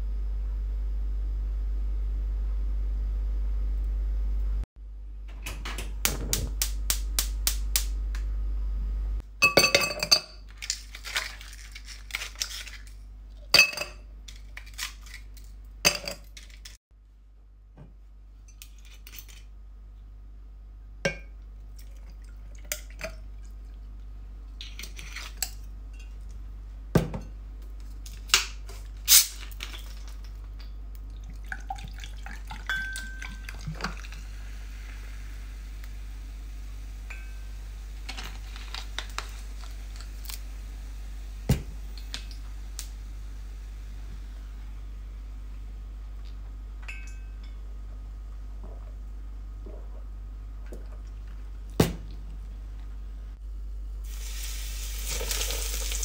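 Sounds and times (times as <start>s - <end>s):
glass knocking on countertop: 27.0s - 27.3s
soda pouring over ice: 54.1s - 56.0s.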